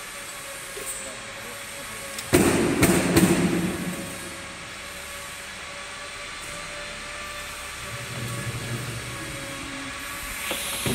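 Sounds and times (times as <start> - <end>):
machinery humming and hissing: 0.0 - 10.9
noisy clatter: 2.3 - 4.4.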